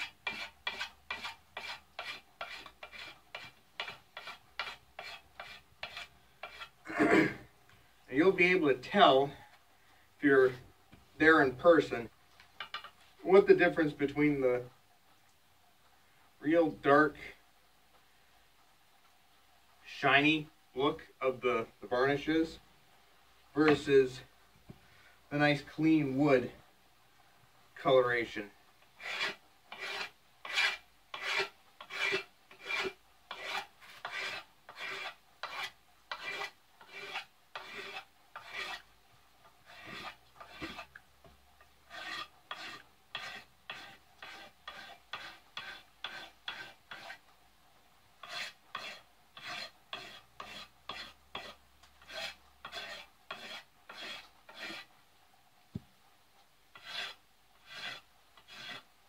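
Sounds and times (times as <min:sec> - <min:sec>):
knife scraping wooden handle: 0:00.0 - 0:06.8, 0:12.6 - 0:13.0, 0:29.0 - 0:38.9, 0:39.6 - 0:41.0, 0:41.9 - 0:47.2, 0:48.2 - 0:54.9, 0:56.7 - 0:58.9.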